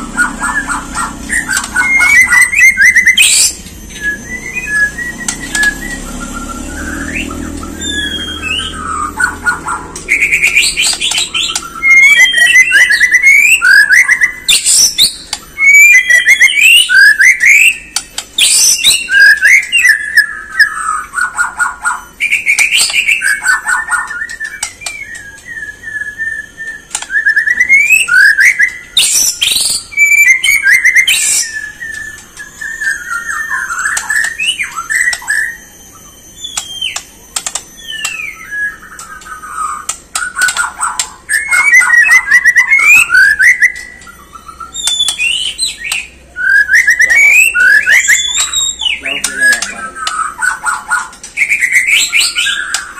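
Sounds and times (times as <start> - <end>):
songbird singing varied song: 0.0 - 52.9.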